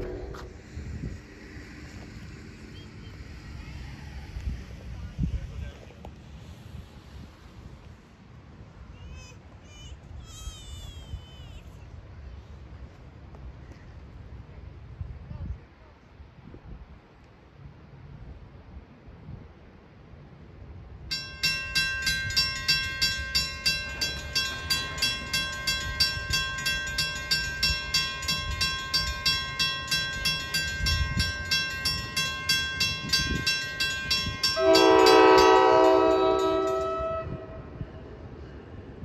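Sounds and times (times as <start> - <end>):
train horn blast: 0.0 - 0.9, 34.5 - 37.8
crossing warning bell ringing: 0.0 - 1.0, 21.1 - 39.0.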